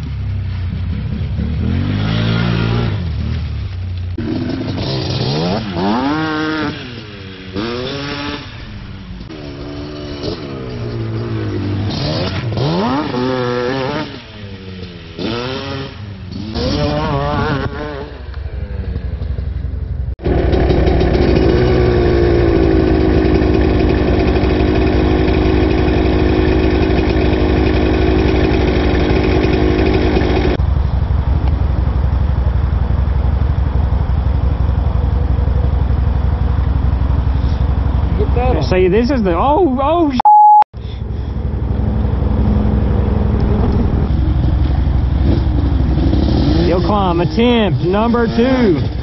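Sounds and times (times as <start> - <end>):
off-road engines revving: 0.0 - 40.2, 40.8 - 49.0
quad engine at high revs: 0.9 - 3.4, 4.2 - 19.4, 20.2 - 30.6, 40.8 - 49.0.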